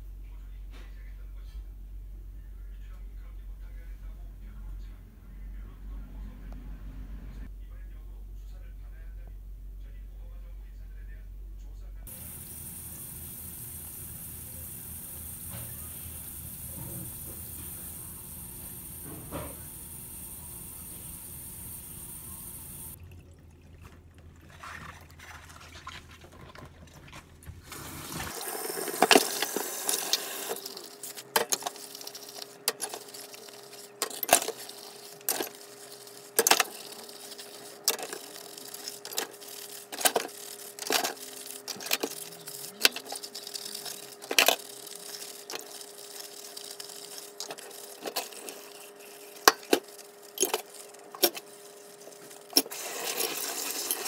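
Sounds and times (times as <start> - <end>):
tap water running: 12.1 - 54.0
scrubbing: 23.8 - 54.0.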